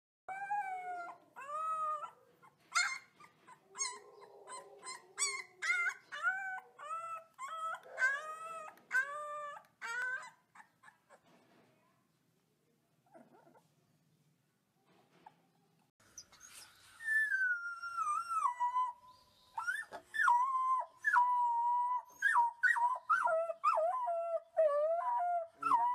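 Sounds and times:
puppy howling: 3.7 - 10.3, 19.6 - 25.9.

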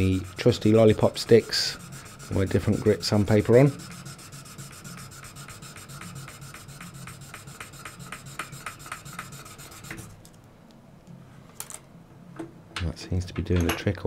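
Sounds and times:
sandpaper scraping metal: 0.0 - 10.2.

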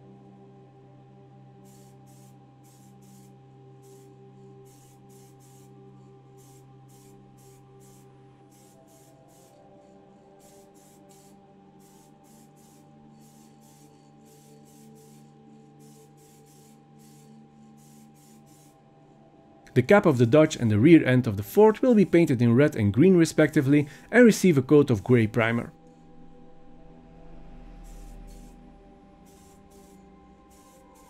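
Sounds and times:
soft background music: 0.0 - 31.0
spray can hissing in bursts: 1.6 - 9.6, 10.4 - 18.8, 21.6 - 22.4, 27.9 - 28.6, 29.2 - 31.0.

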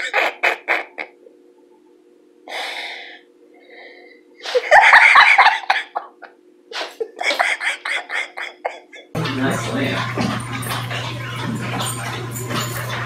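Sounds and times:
person laughing: 0.0 - 1.3, 4.4 - 9.2
steady low hum: 0.0 - 13.0.

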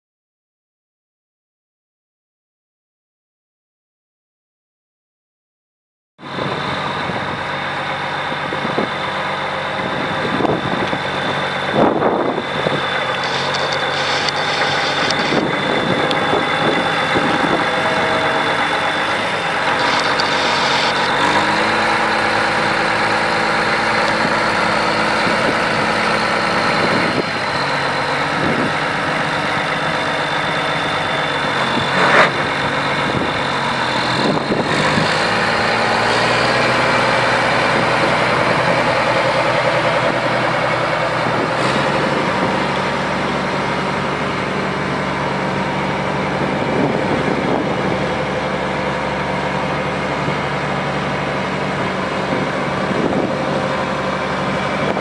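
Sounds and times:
diesel tractor engine idling: 6.2 - 55.0
steady high whine: 6.3 - 34.7.

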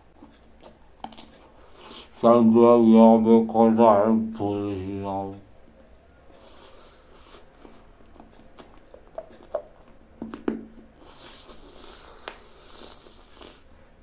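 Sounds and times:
soft breathy sucking: 6.4 - 7.5, 11.0 - 13.7.

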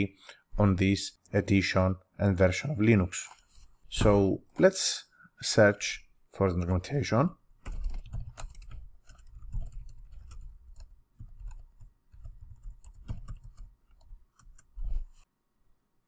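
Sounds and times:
keyboard typing clicks: 7.6 - 14.7.

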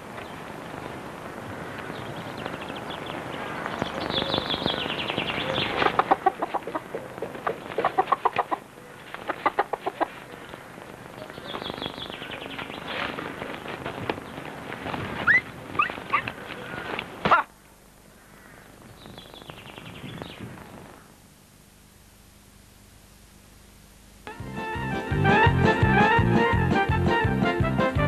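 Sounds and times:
hen cackling: 3.3 - 10.4, 15.2 - 17.6.

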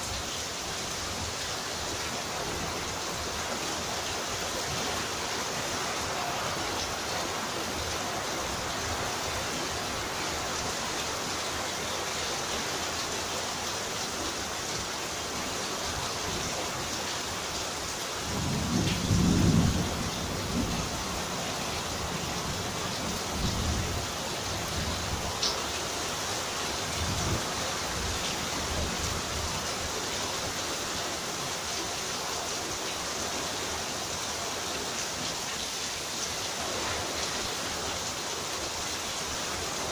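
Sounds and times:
steady rain: 0.0 - 39.9
thunder rumbling: 18.3 - 21.0.

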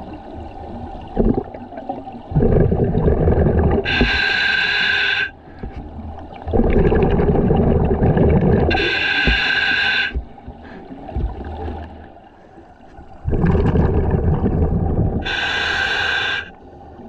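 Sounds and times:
exhaled bubbles underwater: 0.0 - 17.0
regulator air hiss: 3.9 - 5.4, 8.7 - 10.3, 15.2 - 16.6.

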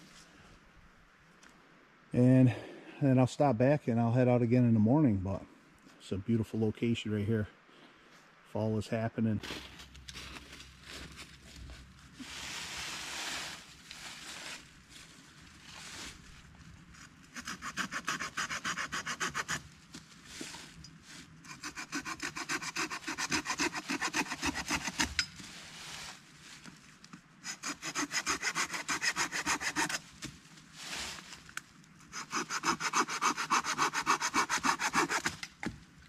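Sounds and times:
hand saw cutting branch: 17.3 - 19.7, 21.4 - 25.4, 27.4 - 30.3, 32.0 - 35.7.

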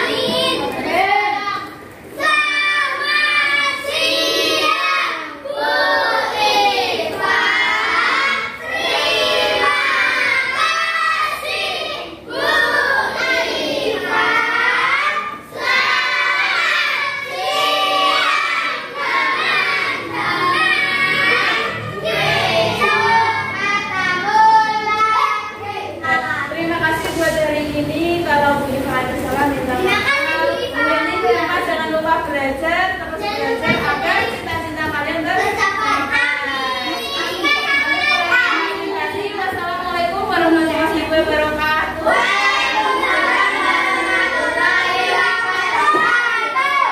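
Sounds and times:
children singing: 0.0 - 26.5, 35.9 - 39.3, 41.8 - 46.9.

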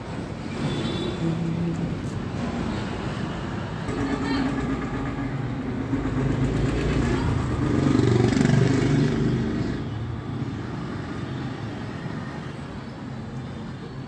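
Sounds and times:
vehicle engine passing by: 5.7 - 9.9.

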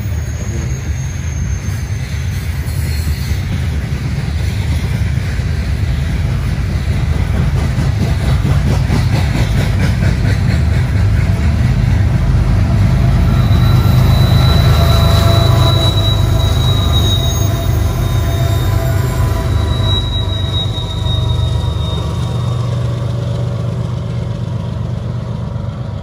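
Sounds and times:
high squeal: 0.0 - 3.6, 11.9 - 23.7
diesel locomotives: 0.0 - 26.0
train cars rumbling: 0.0 - 26.0
wheels clacking over rail joints: 3.3 - 25.9.

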